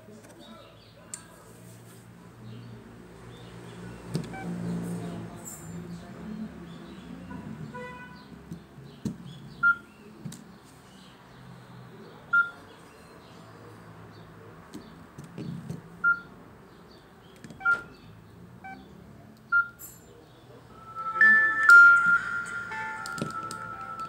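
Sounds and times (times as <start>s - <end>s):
phone key beeps: 12.3s - 12.6s, 17.6s - 17.9s
phone start-up melody: 20.7s - 24.0s.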